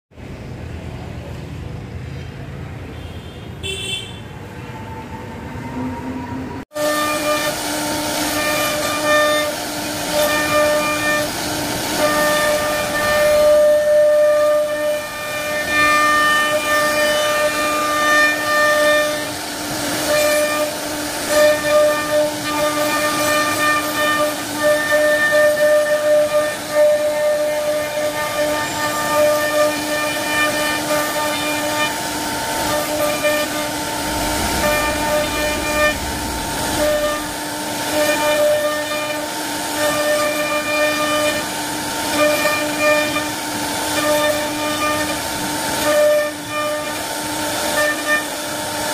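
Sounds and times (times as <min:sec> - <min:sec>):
router spindle carving wood: 0:06.8 - 0:48.8
low hum: 0:33.4 - 0:37.8.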